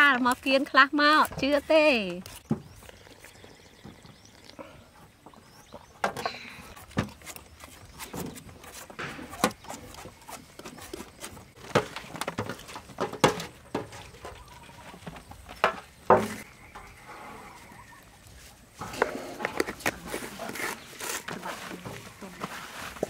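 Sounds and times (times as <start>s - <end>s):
peeler shaving coconut flesh: 0.0s - 3.5s.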